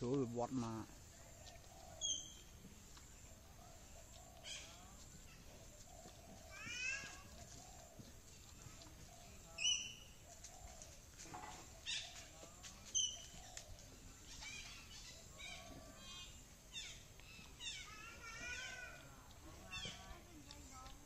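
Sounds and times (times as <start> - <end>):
sharp animal chirps: 1.5 - 2.6, 3.7 - 4.9, 9.6 - 10.4, 12.9 - 19.0
faint squeaky animal calls: 3.2 - 8.4, 9.0 - 20.2.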